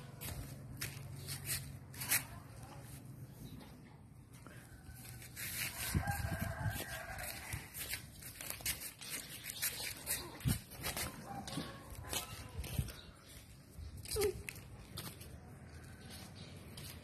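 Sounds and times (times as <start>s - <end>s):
rooster crowing: 5.7s - 7.6s.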